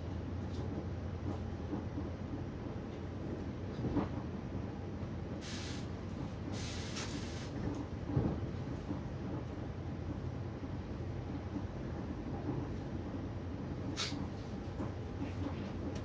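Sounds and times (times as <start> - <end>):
train interior rumble: 0.0 - 16.0
brief hissing rushes: 6.6 - 7.5, 14.0 - 14.3.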